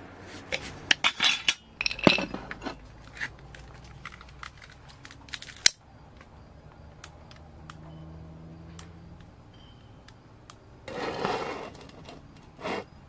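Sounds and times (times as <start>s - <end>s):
glass clinking and rattling: 0.9s - 2.8s.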